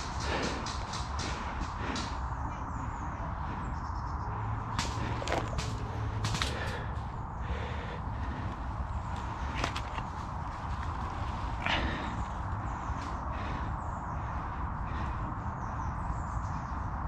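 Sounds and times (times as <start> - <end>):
twigs snapping: 4.7 - 7.0, 8.2 - 12.4
leaves and twigs rustling: 4.7 - 13.7.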